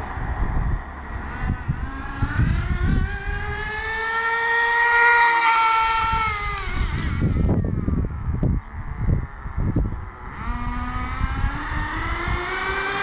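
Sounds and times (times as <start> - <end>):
small engine revving high: 1.3 - 7.7, 10.2 - 13.0.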